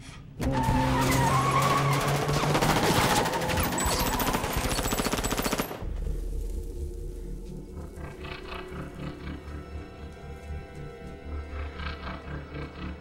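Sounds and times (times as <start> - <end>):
action film score: 0.0 - 13.0
automatic gunfire: 1.6 - 5.8.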